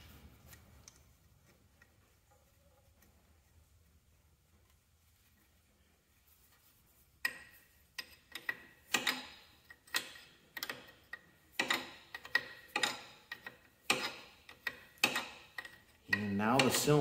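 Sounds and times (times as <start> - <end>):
wrench clicking on metal fitting: 8.0 - 17.0.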